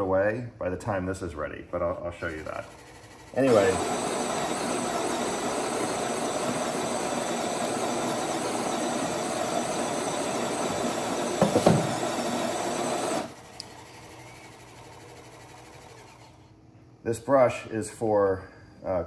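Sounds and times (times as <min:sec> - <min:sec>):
coffee machine motor running: 0:02.3 - 0:16.5
knocks: 0:11.4 - 0:12.0.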